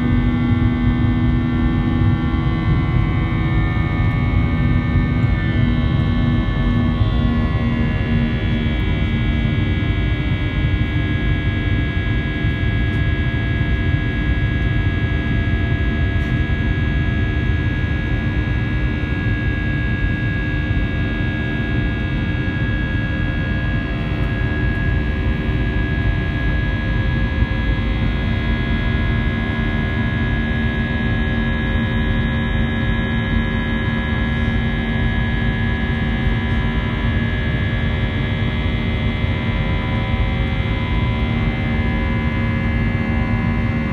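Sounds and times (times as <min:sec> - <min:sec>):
jet engines droning in cabin: 0:00.0 - 0:43.9.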